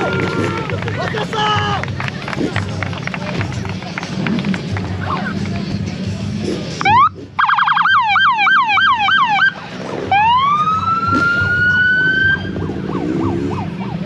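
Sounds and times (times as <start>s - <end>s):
police siren chirps: 6.8s - 14.0s
police siren wail: 6.8s - 14.0s.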